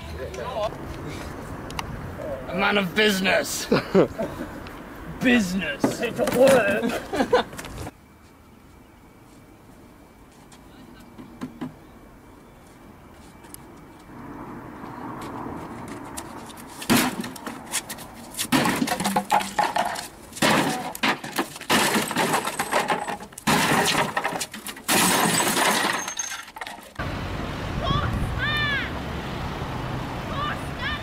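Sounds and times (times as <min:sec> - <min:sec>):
wooden lectern smashing: 0:16.9 - 0:17.6, 0:18.4 - 0:27.0.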